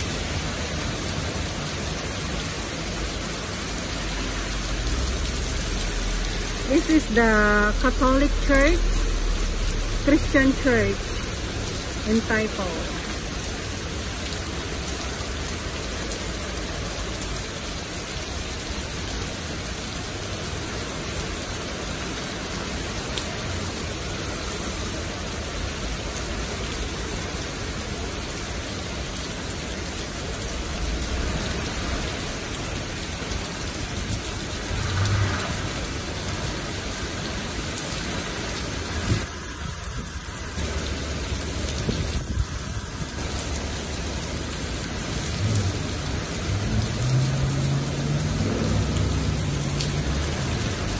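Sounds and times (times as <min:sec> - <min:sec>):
heavy rain on pavement and cars: 0:00.0 - 0:50.9
low rumbles: 0:04.5 - 0:13.6, 0:30.5 - 0:36.6.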